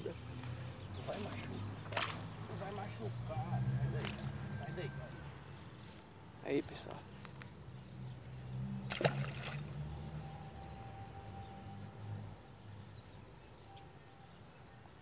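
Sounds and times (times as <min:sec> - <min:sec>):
fish splashing into water: 0:01.2 - 0:02.3, 0:04.0 - 0:04.3, 0:08.8 - 0:09.9
low hum: 0:07.8 - 0:13.2.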